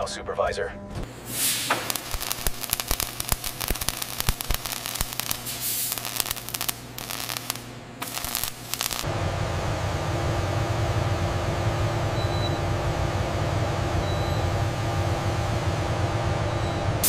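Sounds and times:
steady low hum: 0.0 - 17.0
welding arc crackling: 1.1 - 9.1.

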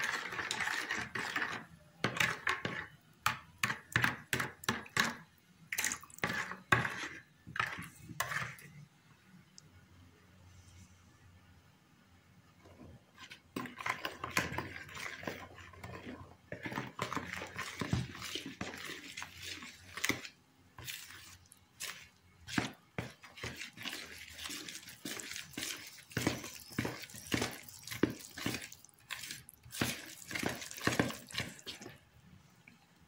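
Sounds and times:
hand squelching wet dough: 13.7 - 32.1.

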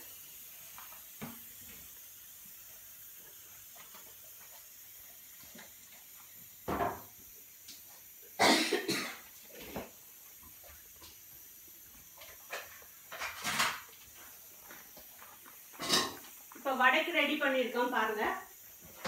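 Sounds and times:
cookware clatter: 12.4 - 13.9.

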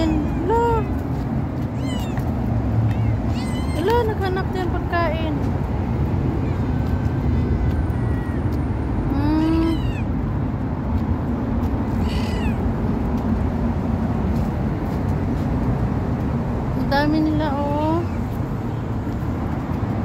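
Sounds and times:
cats meowing: 1.6 - 4.0, 9.1 - 10.1, 11.9 - 12.7.

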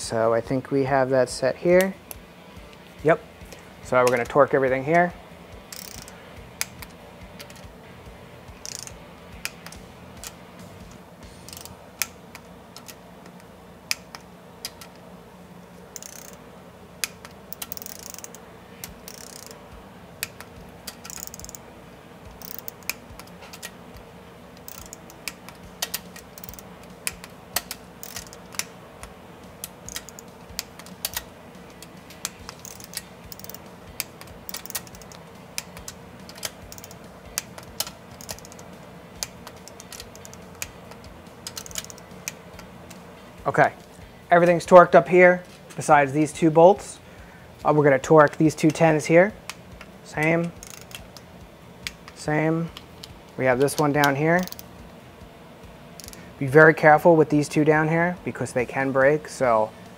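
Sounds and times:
low steady hum: 0.0 - 59.9
torque wrench ratcheting and clicking: 5.6 - 7.7, 8.5 - 15.0, 16.0 - 16.4, 17.0 - 19.6, 20.2 - 21.7, 22.3 - 23.8, 24.5 - 43.0, 48.5 - 54.8, 56.0 - 56.3.

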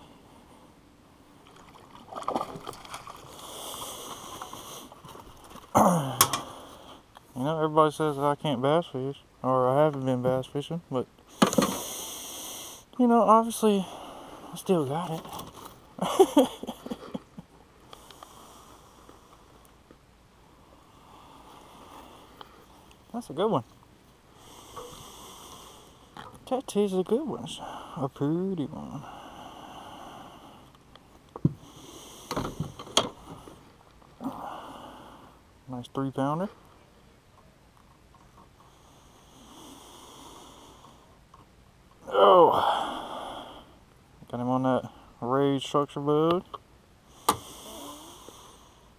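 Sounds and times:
low hiss: 0.0 - 48.9
faint hiss of breath: 3.3 - 5.1, 11.2 - 13.0, 13.7 - 14.7, 17.8 - 19.7, 20.5 - 22.9, 24.3 - 26.2, 27.6 - 28.1, 28.9 - 30.8, 31.6 - 35.5, 38.6 - 41.2, 42.4 - 43.9, 47.0 - 48.9
man sighing loudly: 5.7 - 6.6, 42.0 - 43.6.

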